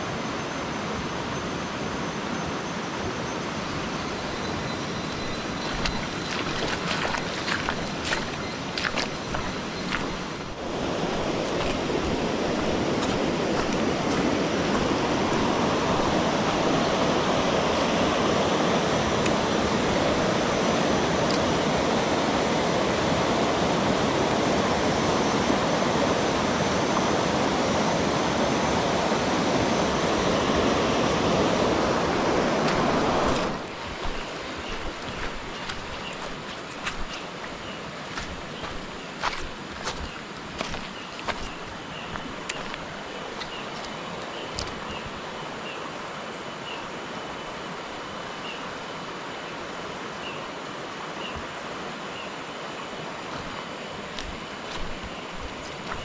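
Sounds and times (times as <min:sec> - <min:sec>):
river rapids rushing over rocks: 0:04.6 - 0:46.2.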